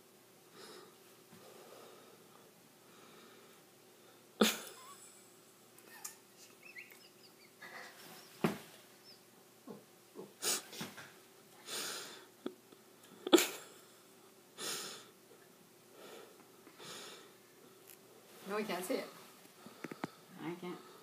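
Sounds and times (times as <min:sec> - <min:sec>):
man breathing heavily through nose: 0:00.5 - 0:04.4, 0:11.6 - 0:12.3, 0:14.6 - 0:15.2, 0:15.9 - 0:17.4, 0:19.6 - 0:21.0.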